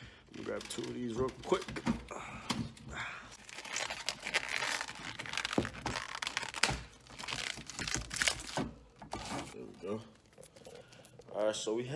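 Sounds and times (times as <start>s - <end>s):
plastic wrap crinkling and tearing: 0.3s - 1.7s, 3.4s - 11.5s.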